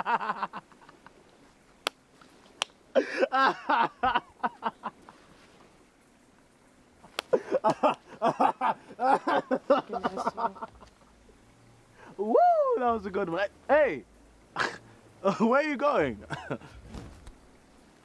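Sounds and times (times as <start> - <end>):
man laughing heartily: 0.0 - 1.1, 2.9 - 5.2, 7.3 - 10.9, 14.6 - 15.4, 16.2 - 16.8.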